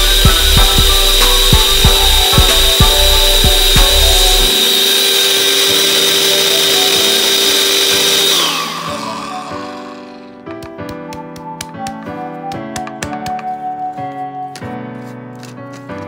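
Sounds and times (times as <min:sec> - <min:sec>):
blender blade spinning down: 0:00.0 - 0:10.4
blender motor grinding leaves: 0:00.0 - 0:10.4.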